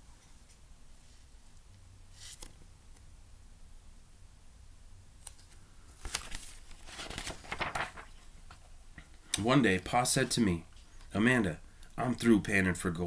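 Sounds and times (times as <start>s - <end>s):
paper pages rustling: 5.3s - 8.6s.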